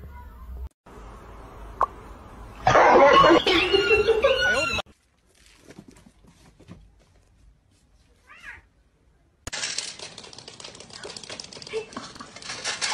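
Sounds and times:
kibble rattling into plastic bowl: 9.5 - 12.9.

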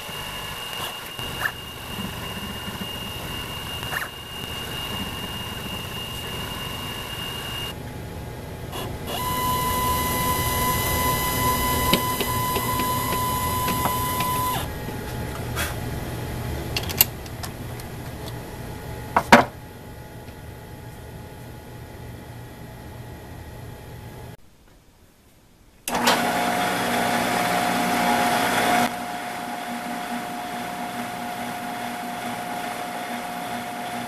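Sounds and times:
mill motor whining: 0.0 - 19.1.

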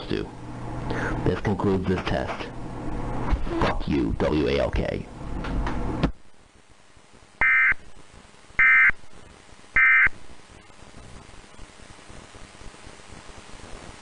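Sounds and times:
low hiss: 6.3 - 14.0.

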